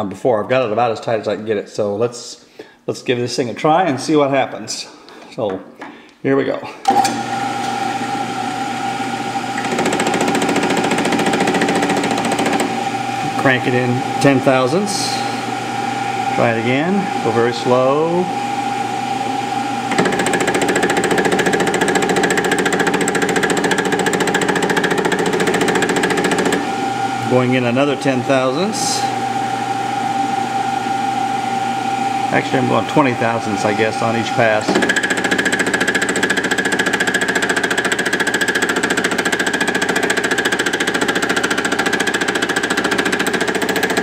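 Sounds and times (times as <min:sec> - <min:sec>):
milling machine hum: 0:06.9 - 0:44.0
cutter striking metal rhythmically: 0:34.7 - 0:44.0.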